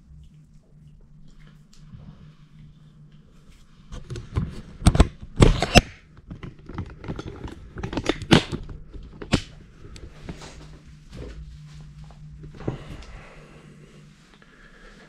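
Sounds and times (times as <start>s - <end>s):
handling clicks and knocks: 4.2s - 9.5s.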